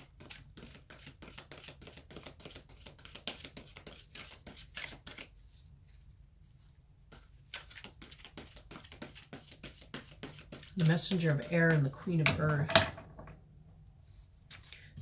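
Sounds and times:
cards being shuffled: 0.1s - 6.0s, 7.1s - 12.7s.

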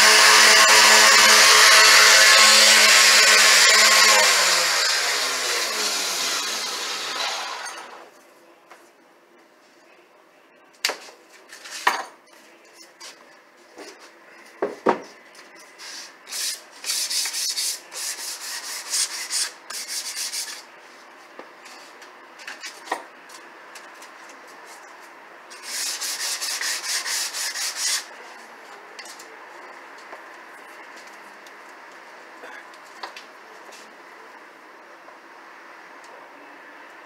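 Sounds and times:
hand sanding rubbing strokes: 15.8s - 20.7s, 25.6s - 28.1s.

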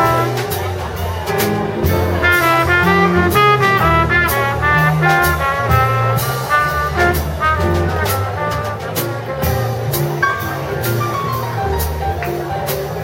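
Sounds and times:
bass notes: 0.0s - 13.0s
drums with cymbal strokes: 0.0s - 13.0s
horn playing quick runs: 2.2s - 9.4s.

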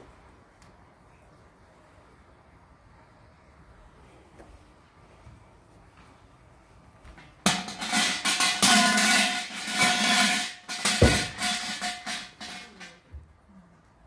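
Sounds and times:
large bell rattling and ringing: 7.5s - 13.0s.

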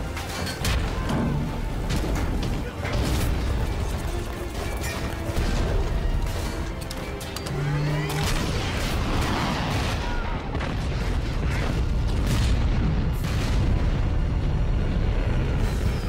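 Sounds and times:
film score: 0.0s - 16.0s
explosions: 8.2s - 16.0s.

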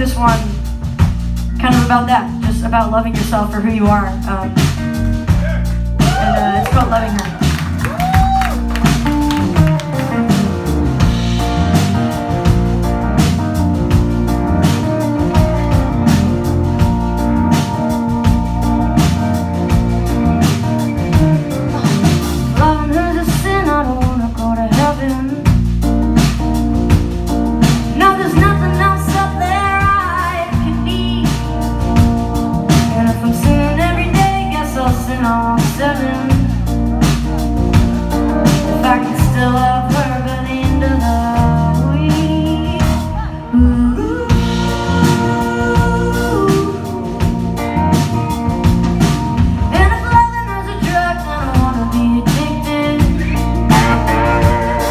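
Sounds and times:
bass guitar: 0.0s - 54.9s
drum kit: 0.0s - 54.9s
electric guitar: 0.0s - 54.9s
woman singing lead vocal: 1.6s - 5.0s, 6.0s - 8.4s, 22.6s - 25.6s, 27.6s - 31.8s, 32.7s - 36.8s, 38.1s - 48.1s, 49.7s - 54.9s.

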